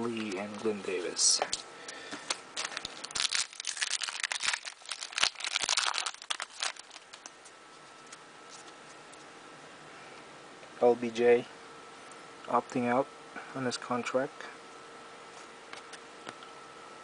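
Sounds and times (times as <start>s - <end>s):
foil wrapper tearing and crinkling: 2.6s - 7.3s.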